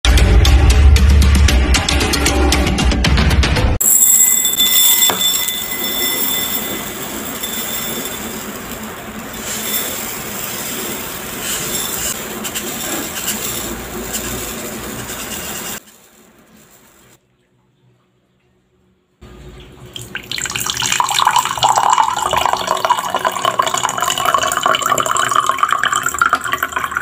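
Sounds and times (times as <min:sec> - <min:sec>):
rice grains pouring into glass bowl: 0:03.8 - 0:17.0, 0:20.2 - 0:27.0.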